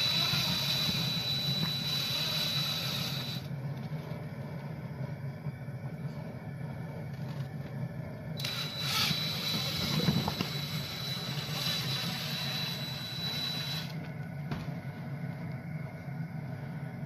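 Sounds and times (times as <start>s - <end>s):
cordless drill motor whine: 0.0s - 3.5s, 8.4s - 14.2s
steady low hum: 0.0s - 17.0s.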